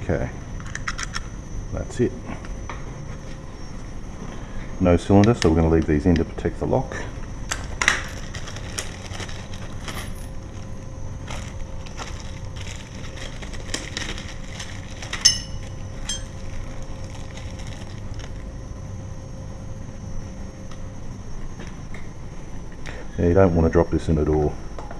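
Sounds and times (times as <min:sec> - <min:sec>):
plastic bags crinkling: 0:07.6 - 0:18.5
ringing metallic clink: 0:15.2 - 0:16.4.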